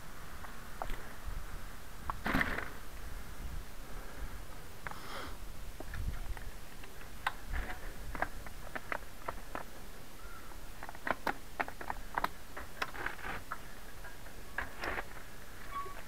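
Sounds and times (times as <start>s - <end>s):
tyres crackling over dry leaves: 4.8s - 16.0s.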